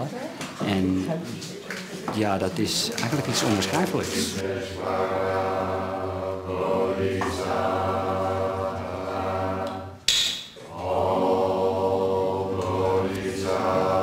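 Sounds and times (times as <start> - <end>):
group chanting: 4.0 - 14.0.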